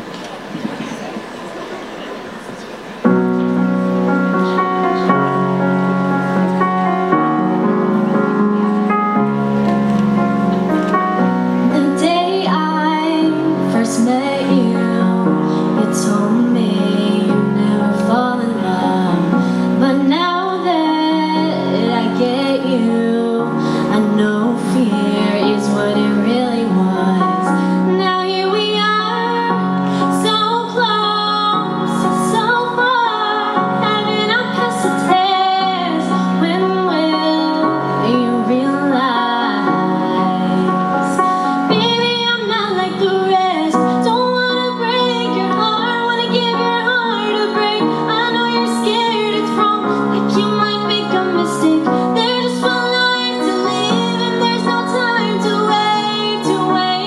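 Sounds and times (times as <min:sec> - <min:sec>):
backing music with held chords: 0:02.8 - 0:57.0
woman singing into microphone: 0:11.6 - 0:57.0.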